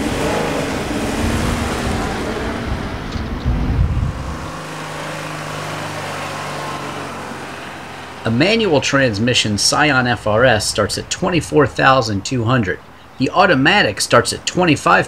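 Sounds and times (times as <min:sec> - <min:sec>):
car engine accelerating past: 0:00.0 - 0:08.3.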